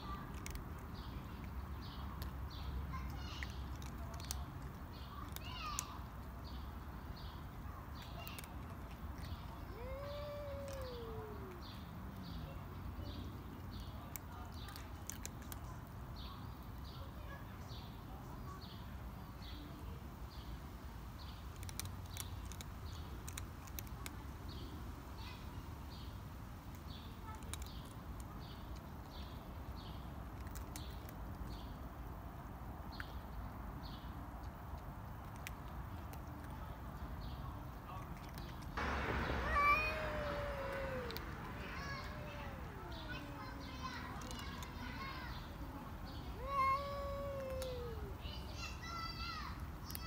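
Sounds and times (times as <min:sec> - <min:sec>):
cat yowling: 0:09.2 - 0:11.7, 0:38.8 - 0:44.6, 0:46.4 - 0:48.2
short falling high call: 0:38.8 - 0:43.7.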